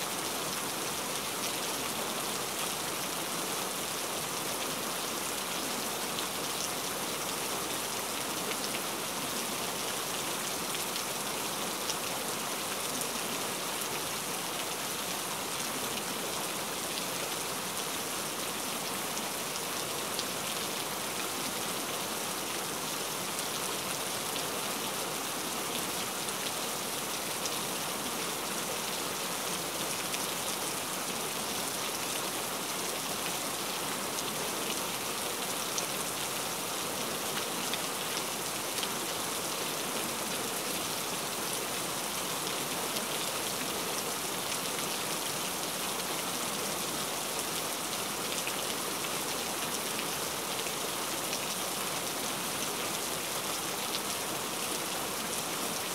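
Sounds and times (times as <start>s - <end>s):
steady rain: 0.0s - 55.9s.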